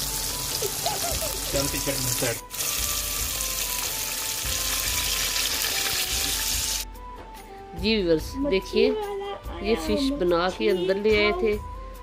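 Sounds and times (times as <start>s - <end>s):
fish sizzling in hot oil: 0.0s - 6.8s.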